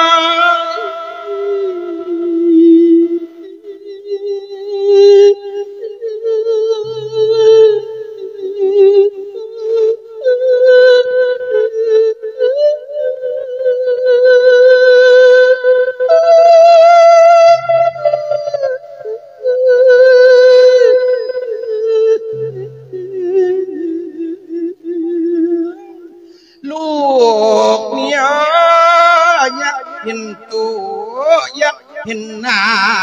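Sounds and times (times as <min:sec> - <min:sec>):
person singing mourning verse: 0:00.0 - 0:33.0.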